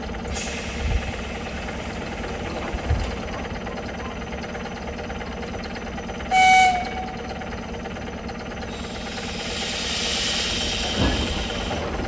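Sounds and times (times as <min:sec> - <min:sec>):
train equipment humming: 0:00.0 - 0:12.0
train horn blast: 0:06.3 - 0:07.2.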